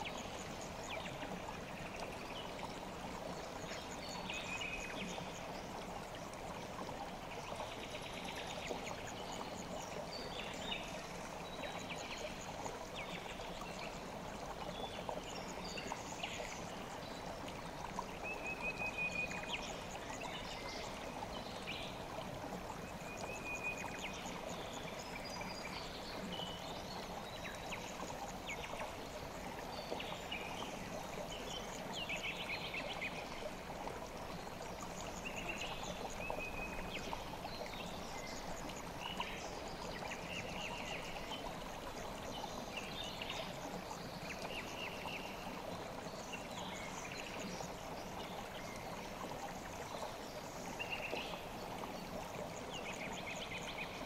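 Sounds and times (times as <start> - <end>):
stream flowing: 0.0 - 54.0.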